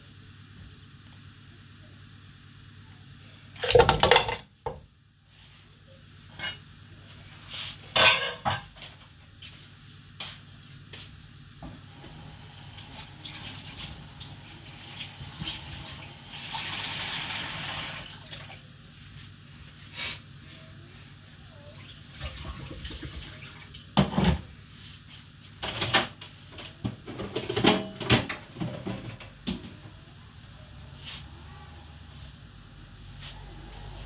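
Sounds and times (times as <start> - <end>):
pots and dishes clattering: 3.6 - 4.5, 7.9 - 8.8, 24.0 - 24.5, 27.0 - 29.3.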